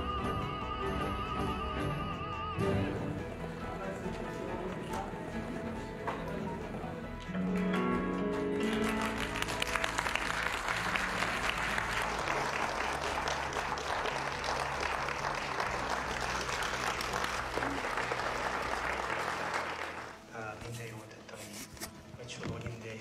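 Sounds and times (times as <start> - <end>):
music playing: 0.0 - 23.0
audience applauding: 7.2 - 20.3.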